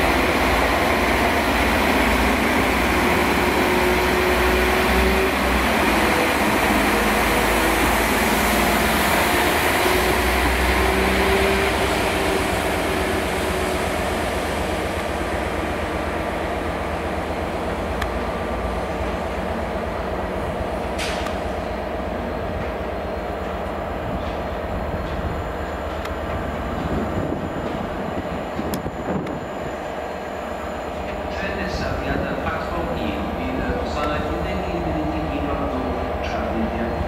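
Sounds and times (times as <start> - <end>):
diesel train engine: 0.0 - 37.0
rail rumble: 0.0 - 37.0.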